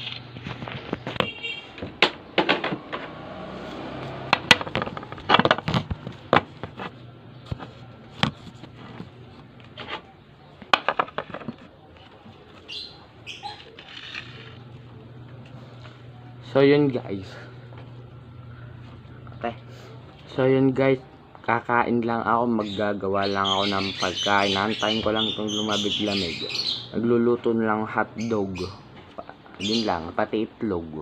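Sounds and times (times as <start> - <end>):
phone handling bumps: 4.3 - 11.8.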